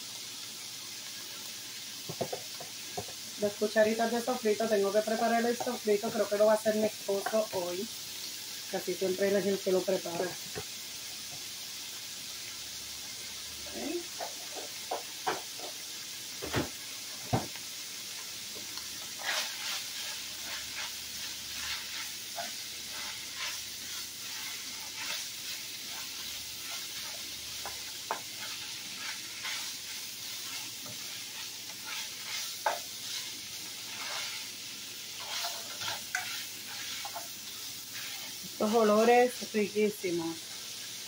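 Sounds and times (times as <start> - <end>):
meat sizzling in a skillet: 0.0 - 41.0
utensil scraping and clicking on pan: 14.1 - 15.8, 19.0 - 25.3, 25.9 - 33.3, 33.9 - 34.5, 35.1 - 37.3.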